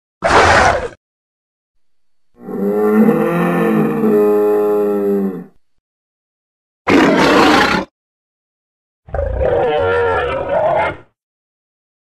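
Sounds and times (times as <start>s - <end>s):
deep rumbling creature roar: 2.4s - 5.6s, 9.1s - 11.1s.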